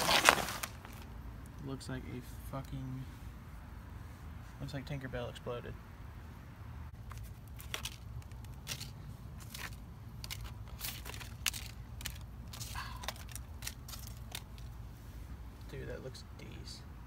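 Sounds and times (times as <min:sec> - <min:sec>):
crunching and crackling clicks: 0:07.0 - 0:14.8.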